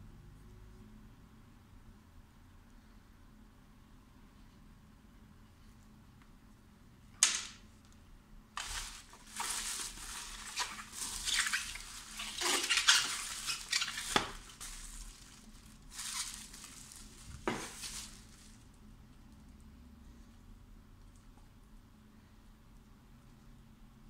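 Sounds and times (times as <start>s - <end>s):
bubble wrap crinkling: 8.6s - 18.9s.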